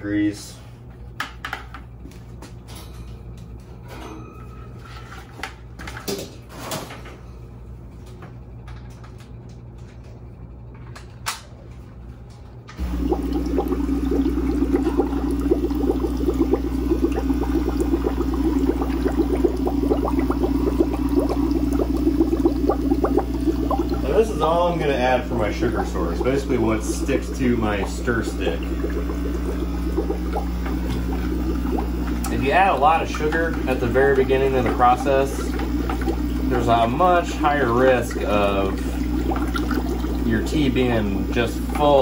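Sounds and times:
air bubbling through water: 12.8 - 41.9
air pump humming: 12.8 - 42.0.

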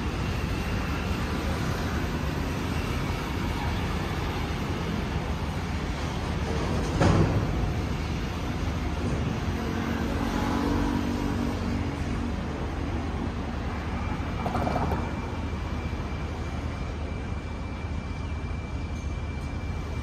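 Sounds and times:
scooters and cars passing: 0.0 - 17.6
thin steady high tone: 15.1 - 20.0.

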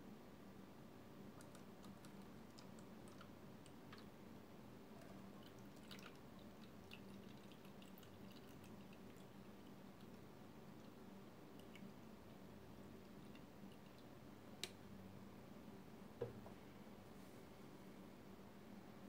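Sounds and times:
low steady hum: 0.0 - 19.0
small irregular ticks: 1.4 - 4.1, 4.9 - 12.2
liquid dripping and trickling: 4.9 - 14.2.

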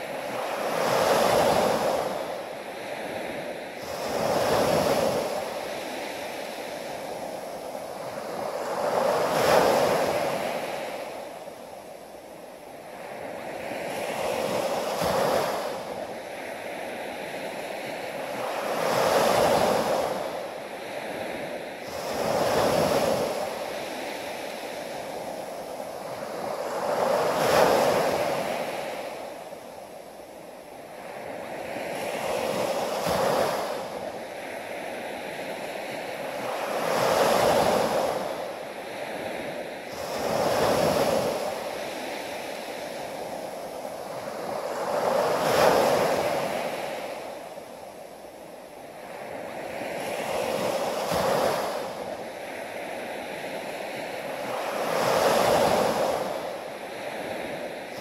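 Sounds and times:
small waves breaking on beach: 0.0 - 58.0.

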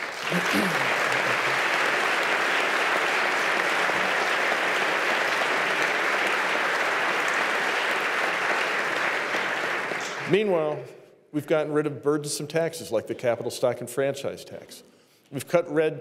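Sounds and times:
audience applause: 0.0 - 10.8.

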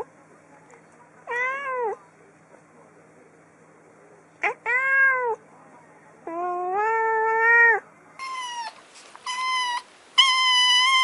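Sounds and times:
kitten meowing: 6.3 - 11.0.

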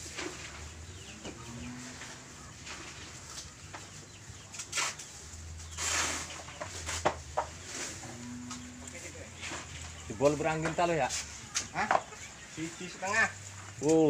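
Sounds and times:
chickens clucking: 0.0 - 14.0
short rustle: 1.7 - 11.5.

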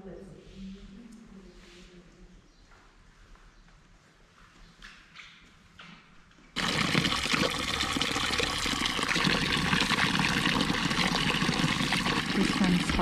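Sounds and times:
water pouring into fountain trough: 6.6 - 13.0.

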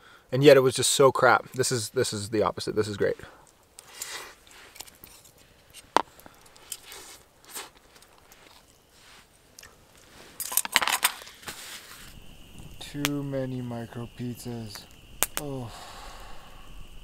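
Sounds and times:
person chewing: 6.2 - 8.8.

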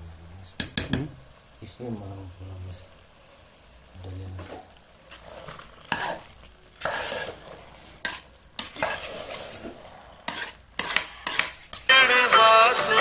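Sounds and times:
metal spoon scraping pot: 4.4 - 11.9.

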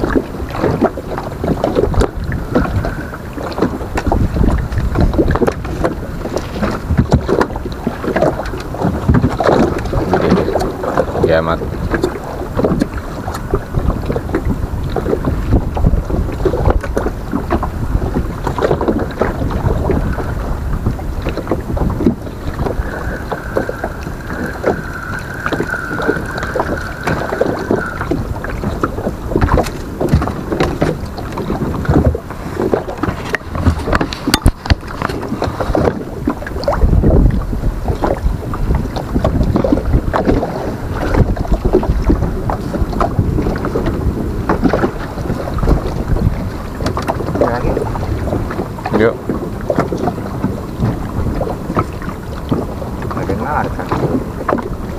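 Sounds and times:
splashes and thuds: 0.0 - 54.9
water slapping boat hull: 0.0 - 54.9
wind buffeting microphone: 0.0 - 54.9.

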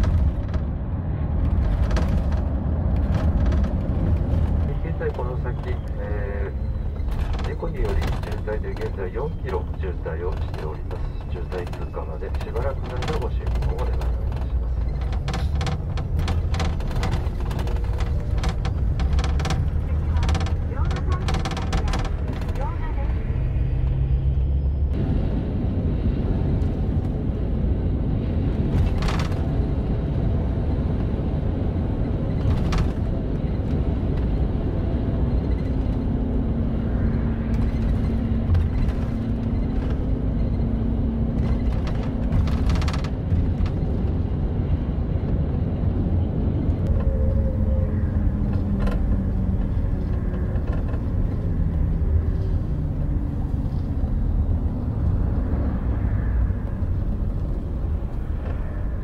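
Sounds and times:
coach engine and road rumble: 0.0 - 59.0
clicks and rattles: 7.0 - 22.8.

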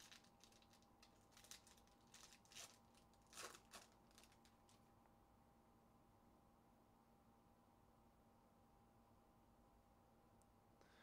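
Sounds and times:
foil wrapper crinkling: 0.0 - 4.9.

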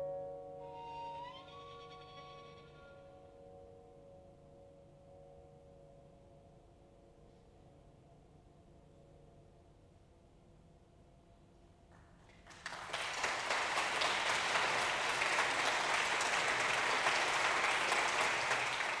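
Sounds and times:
audience applause: 12.3 - 19.0.

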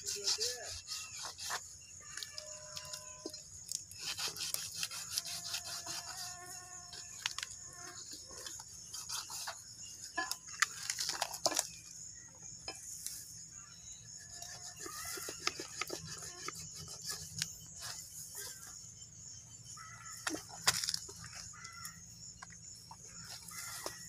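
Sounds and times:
knife scraping meat and bone: 0.0 - 2.2, 3.8 - 7.1.

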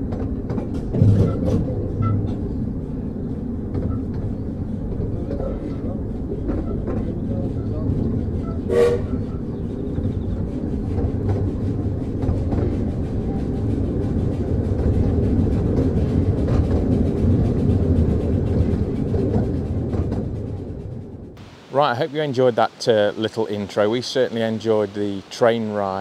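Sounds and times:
wheels clicking over rails: 0.0 - 21.4
steam train rumbling: 0.0 - 26.0
train whistle toot: 8.4 - 9.5.

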